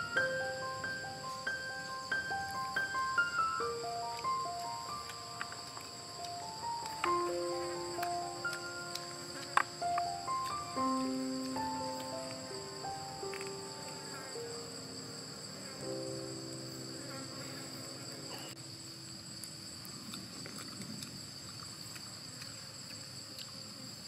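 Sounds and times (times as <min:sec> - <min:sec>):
background music: 0:00.0 - 0:18.3
high-pitched insect chorus: 0:00.0 - 0:24.0
chopsticks and shells clicking: 0:08.0 - 0:10.6.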